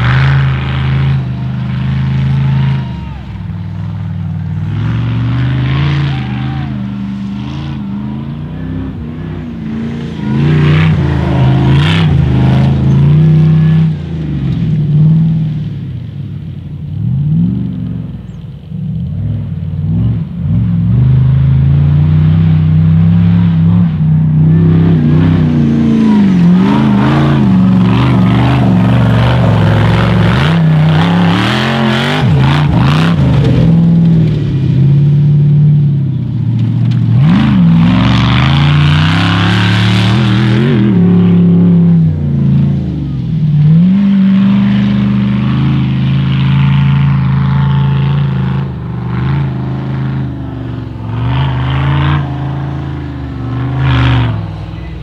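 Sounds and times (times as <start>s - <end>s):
race car engine revving: 0.0s - 16.1s, 18.9s - 55.0s.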